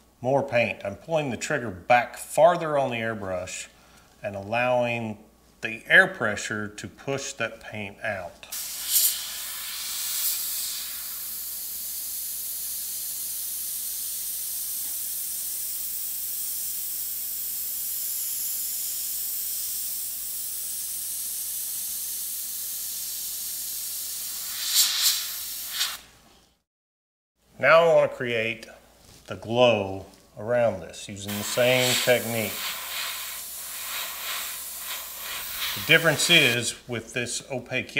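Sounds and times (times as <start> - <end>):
airbrush hissing: 8.5 - 26.1, 31.3 - 36.8.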